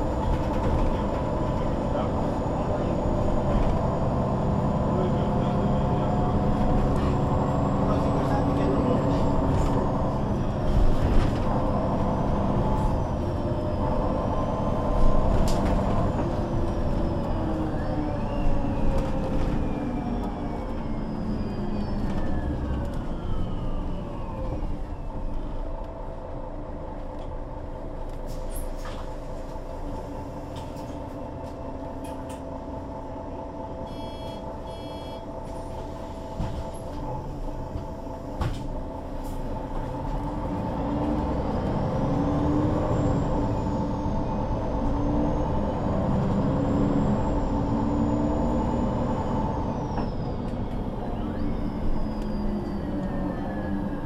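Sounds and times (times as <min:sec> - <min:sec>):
bus diesel engine whining: 0:00.0 - 0:54.0
short beeps: 0:33.8 - 0:35.3.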